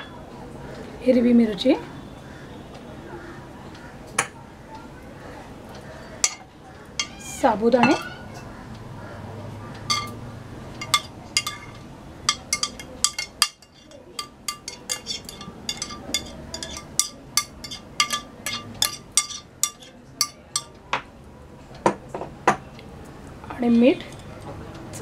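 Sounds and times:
metal spoon clinking on glass: 6.2 - 7.2, 7.8 - 8.1, 9.9 - 10.2, 10.8 - 20.7.

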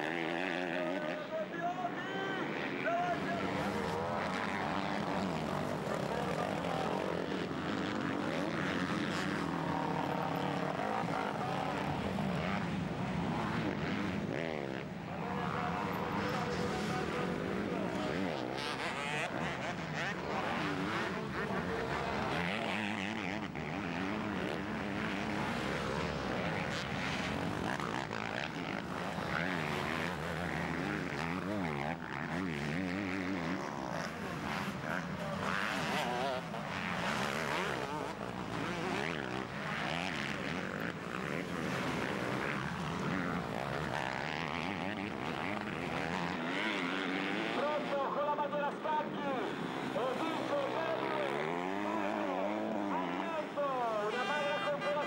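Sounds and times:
motocross bike engines revving: 0.0 - 55.0.

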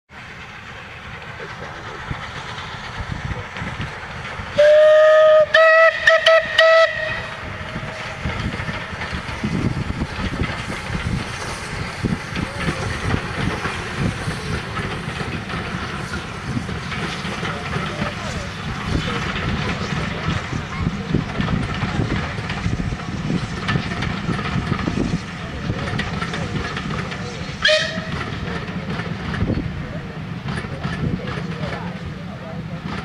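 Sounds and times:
carriages rattling over rails: 0.1 - 33.0
train rumbling: 0.1 - 33.0
steam locomotive whistle: 4.6 - 7.5, 27.6 - 28.2.

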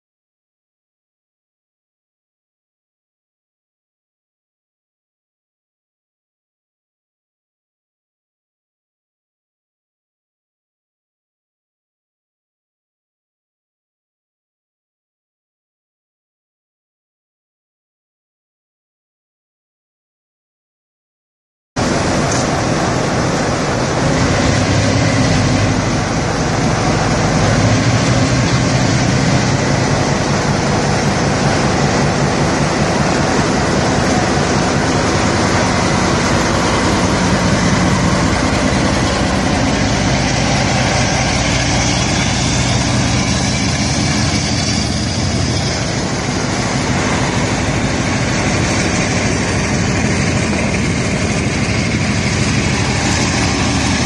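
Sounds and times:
diesel locomotive engine running: 21.8 - 54.0.

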